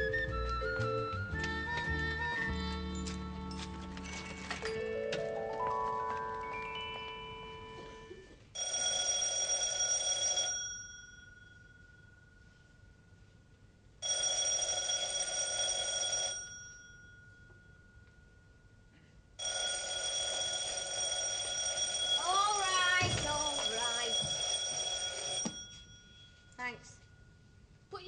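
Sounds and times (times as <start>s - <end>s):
electric doorbell ringing: 3.0s - 12.1s, 14.0s - 17.9s, 19.4s - 26.5s.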